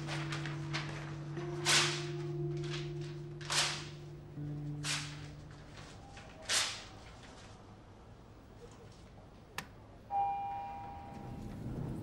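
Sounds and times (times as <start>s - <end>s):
lift chime ding: 10.1s - 11.4s.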